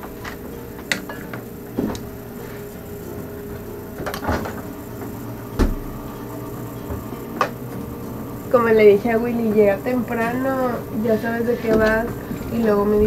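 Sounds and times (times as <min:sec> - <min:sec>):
steady low hum: 0:00.0 - 0:13.0
objects knocking and clattering: 0:03.5 - 0:06.1.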